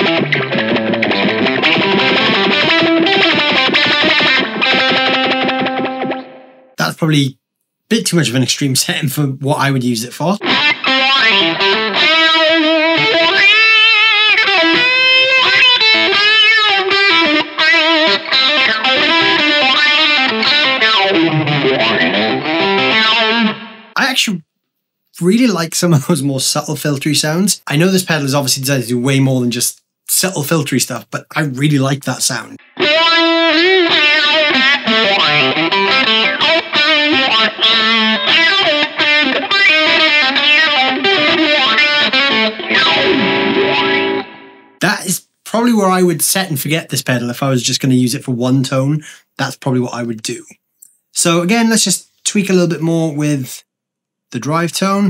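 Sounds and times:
electric guitar with envelope filter: 0.0 - 6.8, 10.4 - 24.0, 32.6 - 44.8.

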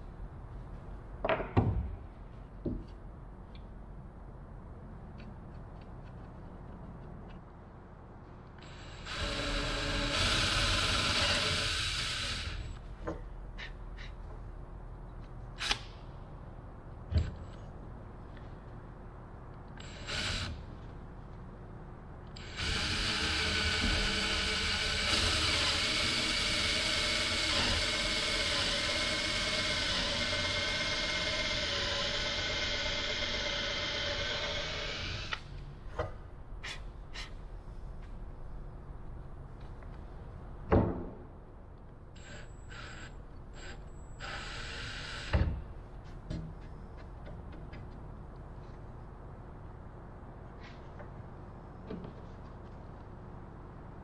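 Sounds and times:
cordless drill boring wood: 8.7 - 12.7, 22.4 - 35.4.

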